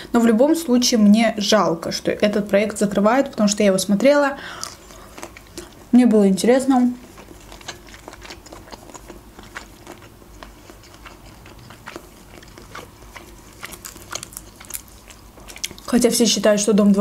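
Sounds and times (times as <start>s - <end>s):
chewing with wet mouth clicks: 7.0s - 16.0s
shrimp shell crackling: 7.6s - 16.0s.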